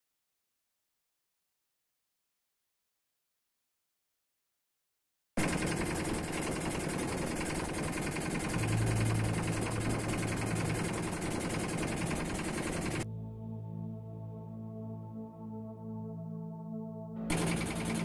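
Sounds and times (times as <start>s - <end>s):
boat engine hum: 5.4s - 13.8s, 17.3s - 18.0s
soft ambient music: 5.5s - 18.0s.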